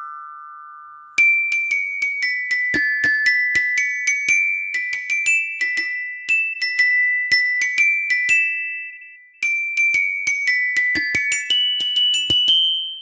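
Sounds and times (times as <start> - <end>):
bell lyre melody: 0.0 - 13.0.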